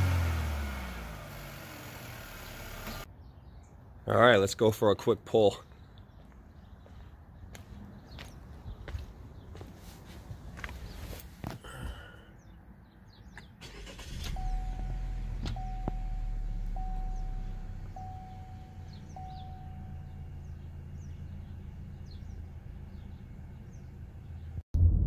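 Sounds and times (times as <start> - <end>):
car engine accelerating: 0.0 - 3.1, 13.6 - 25.0.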